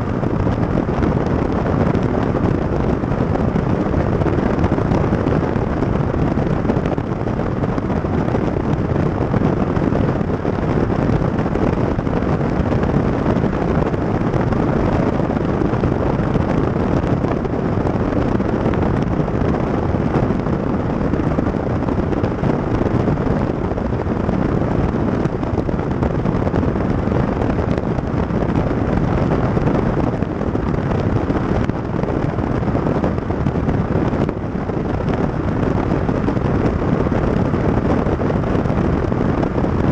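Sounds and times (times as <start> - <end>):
tyre and road noise: 0.0 - 39.9
wind buffeting microphone: 0.0 - 39.9.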